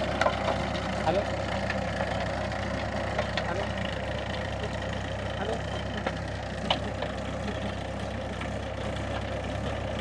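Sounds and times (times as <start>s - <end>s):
blades churning through soil: 0.0s - 10.0s
tractor diesel engine running: 0.0s - 10.0s.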